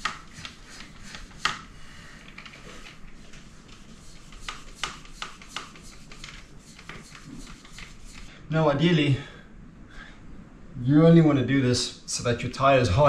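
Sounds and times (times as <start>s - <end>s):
hand pump airy rasps: 0.0s - 1.6s.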